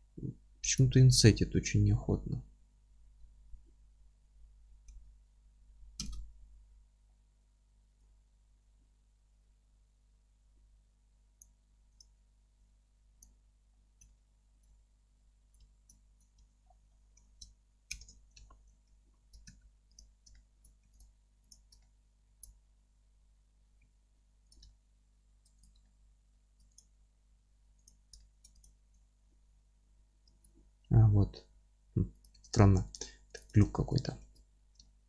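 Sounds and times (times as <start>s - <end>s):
computer mouse clicking: 6.0s - 6.3s, 15.5s - 16.5s, 17.1s - 22.6s, 24.4s - 24.8s, 25.4s - 25.9s, 26.6s - 26.9s, 27.8s - 29.0s.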